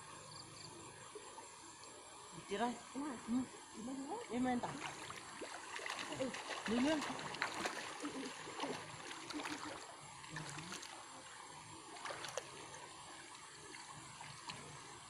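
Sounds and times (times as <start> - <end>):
water sloshing and lapping: 0.9 - 15.0
small splashes: 3.8 - 15.0.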